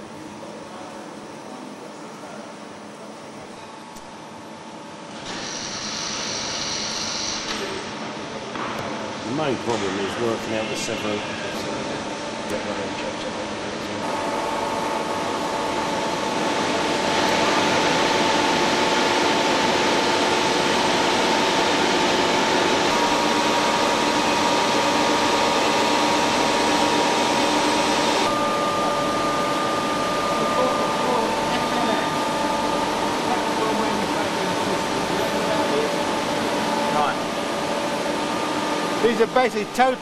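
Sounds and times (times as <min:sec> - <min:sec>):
factory machinery hiss: 0:05.2 - 0:07.9
machinery whining tones: 0:22.8 - 0:40.0.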